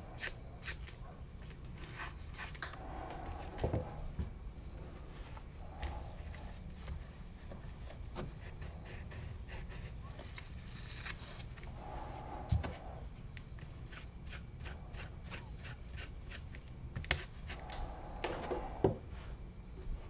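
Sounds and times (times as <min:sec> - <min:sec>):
low steady hum: 0:00.0 - 0:20.0
foam brush rubbing on wood: 0:13.8 - 0:16.5.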